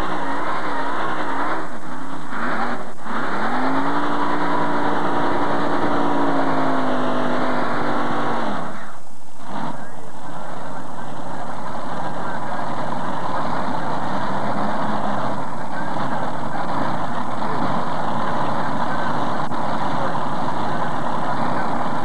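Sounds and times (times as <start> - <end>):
tractor engine idling: 0.0 - 22.0.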